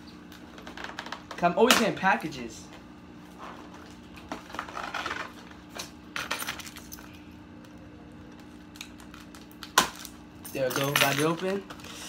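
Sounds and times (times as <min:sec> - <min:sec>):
packaging rustling and scraping: 0:03.3 - 0:05.6.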